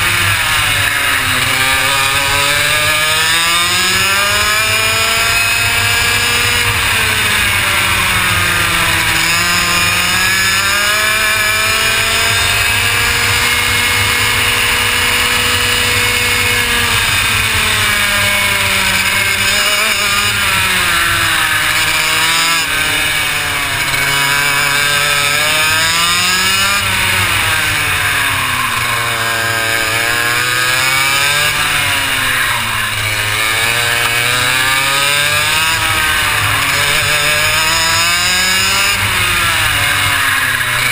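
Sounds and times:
kart engine revving: 0:00.0 - 0:40.9.

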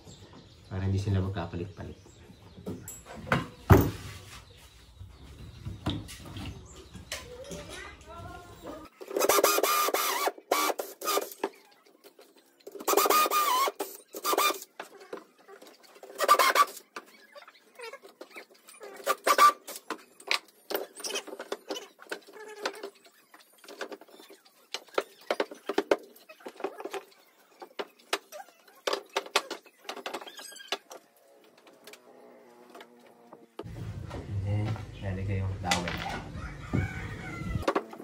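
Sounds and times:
cordless drill boring wood: 0:09.2 - 0:11.3, 0:12.8 - 0:14.6.

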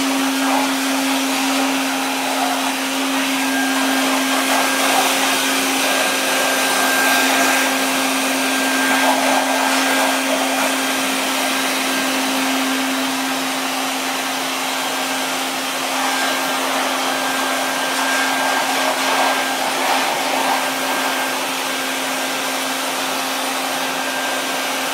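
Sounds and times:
vacuum motor hum with whistle: 0:00.0 - 0:24.9.

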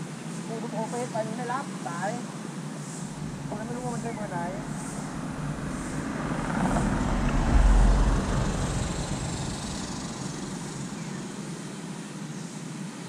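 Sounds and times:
vehicle passing rumble: 0:03.0 - 0:11.6.

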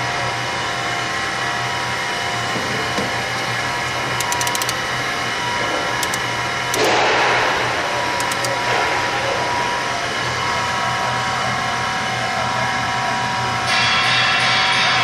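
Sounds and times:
pump motor humming and whining: 0:00.0 - 0:13.8
quick clicks: 0:03.1 - 0:05.2, 0:05.9 - 0:07.2, 0:08.0 - 0:09.2.

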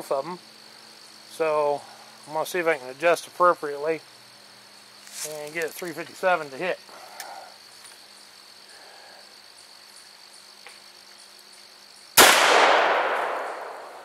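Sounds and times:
gunshot echoing: 0:12.2 - 0:14.0.

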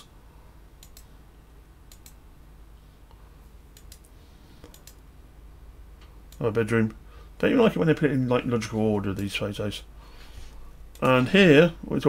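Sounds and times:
faint room hum: 0:00.0 - 0:12.0
computer mouse clicking: 0:00.8 - 0:01.1, 0:01.9 - 0:02.2, 0:03.7 - 0:05.0.

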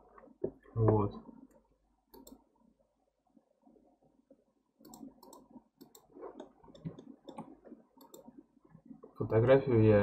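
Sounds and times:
mouse and keyboard clicking: 0:02.1 - 0:02.4, 0:04.8 - 0:08.3.

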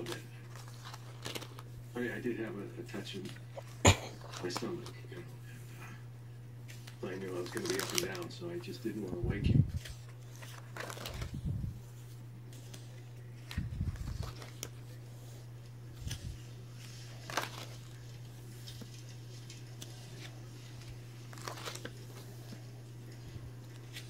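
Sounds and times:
paper pages rustling: 0:00.0 - 0:05.8, 0:06.6 - 0:24.0
steady low hum: 0:00.0 - 0:24.0.

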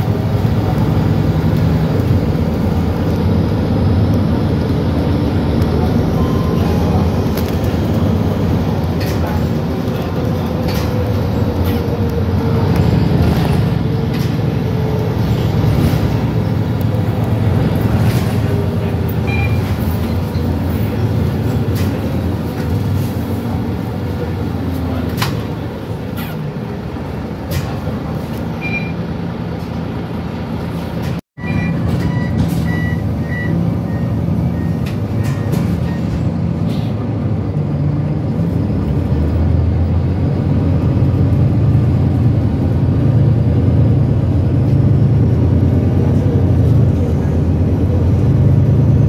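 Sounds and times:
bus diesel engine hum: 0:00.0 - 0:49.0
short high beeps: 0:19.2 - 0:19.7, 0:28.6 - 0:29.0.

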